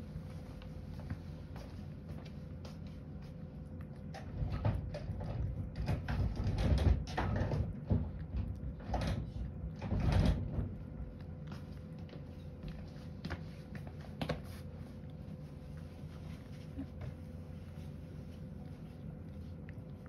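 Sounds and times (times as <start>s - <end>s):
cat chewing and lapping: 0.0s - 20.0s.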